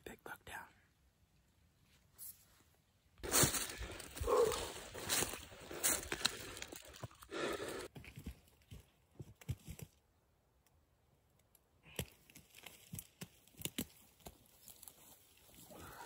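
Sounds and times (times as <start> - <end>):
footsteps through dry brush: 3.2 - 9.9, 12.2 - 16.0.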